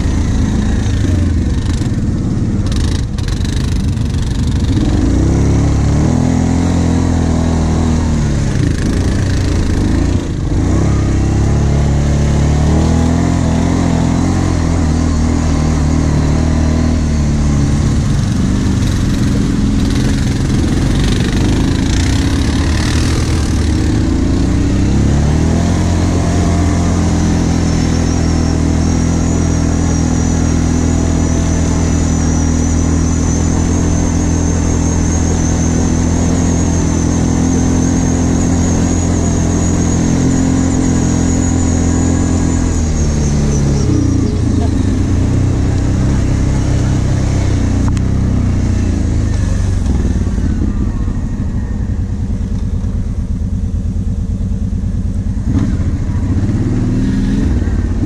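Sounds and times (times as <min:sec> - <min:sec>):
atv engine revving: 0:00.0 - 0:58.0
thin high whine: 0:13.3 - 0:53.5.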